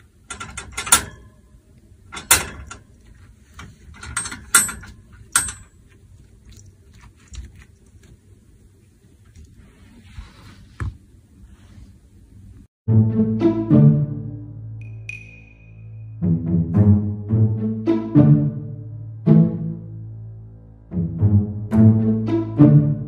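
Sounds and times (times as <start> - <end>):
wire pet cage rattling: 0.2 - 1.5, 2.1 - 5.9.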